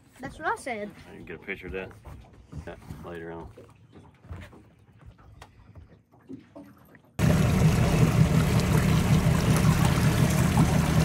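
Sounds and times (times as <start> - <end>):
rushing water with deep rumble: 7.2 - 11.0.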